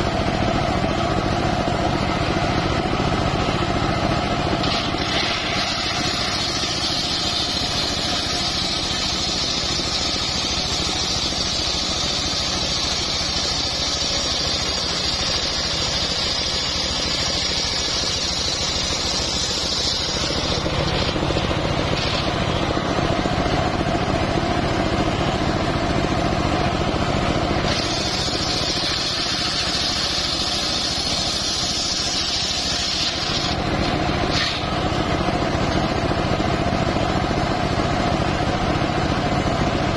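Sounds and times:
engine running: 0:00.0 - 0:39.9
saw blade cutting wood: 0:04.6 - 0:22.9, 0:27.6 - 0:35.0.

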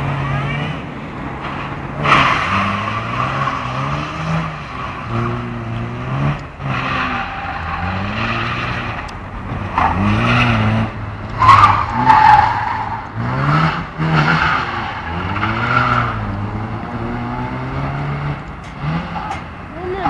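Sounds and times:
car engine revving: 0:00.0 - 0:20.0
tyres squealing: 0:06.7 - 0:13.4.

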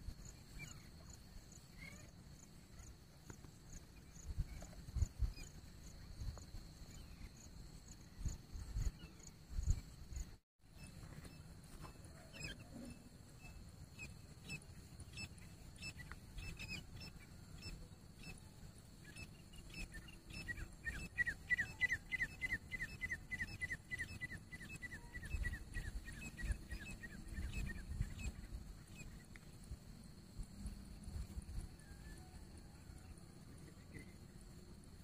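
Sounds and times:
francolin calling: 0:10.8 - 0:29.2.

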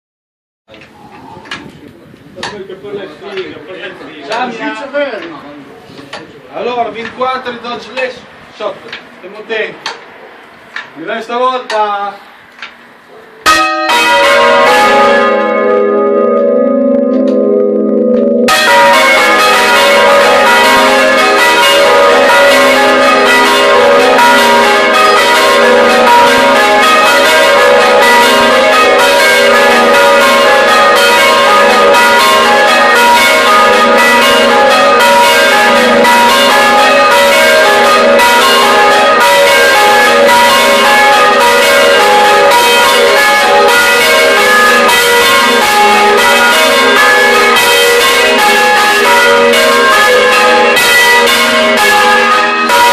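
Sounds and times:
church bells pealing: 0:13.4 - 0:52.9.

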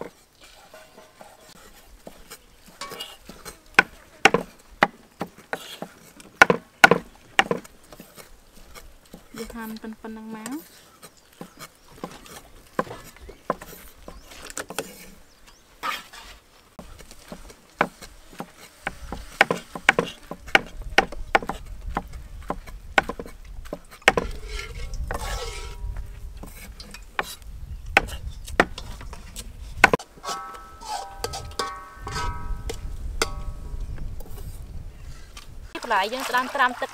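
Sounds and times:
cleaver chopping on wooden block: 0:03.8 - 0:05.7, 0:06.4 - 0:07.7, 0:17.4 - 0:23.3, 0:24.1 - 0:24.4.

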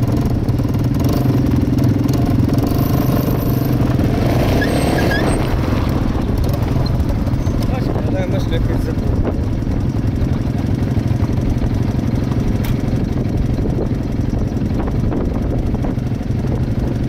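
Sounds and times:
quad bike engine idling: 0:00.0 - 0:17.0
sharp click: 0:12.6 - 0:12.8.

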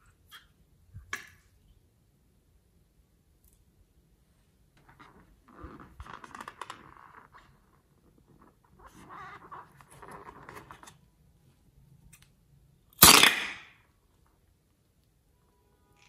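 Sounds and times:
rubber balloon creaking: 0:04.8 - 0:10.9.

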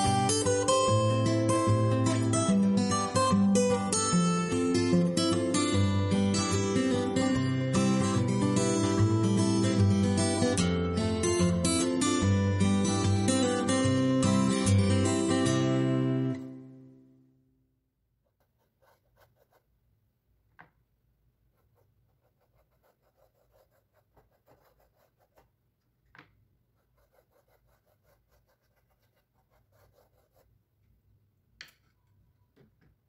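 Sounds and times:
paintbrush strokes on canvas: 0:18.2 - 0:19.8, 0:21.4 - 0:25.5, 0:26.8 - 0:30.5.

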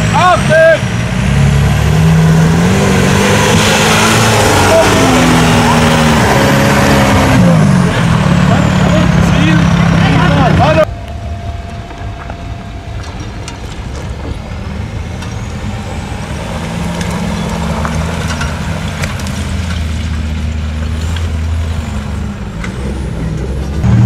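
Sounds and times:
vehicle engine at low revs: 0:00.0 - 0:24.0
faint rising whine: 0:10.8 - 0:16.7.

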